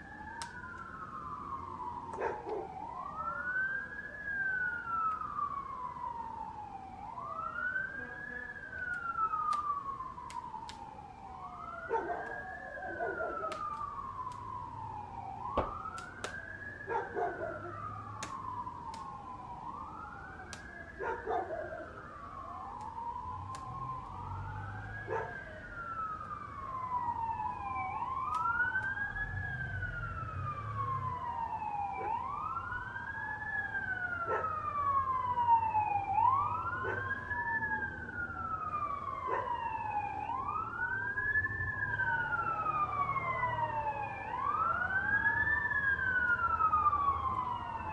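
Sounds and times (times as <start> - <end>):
fire sirens wailing: 0.0 - 47.9
sharp pops: 15.5 - 16.5.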